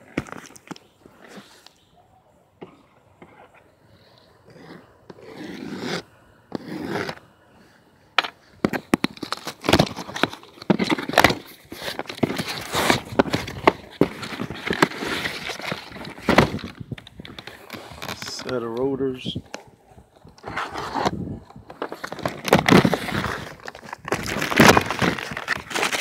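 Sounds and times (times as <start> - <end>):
cardboard sliding scrapes: 4.4 - 7.2, 10.7 - 16.7, 20.4 - 21.2
plastic wrap crinkling: 21.7 - 26.0.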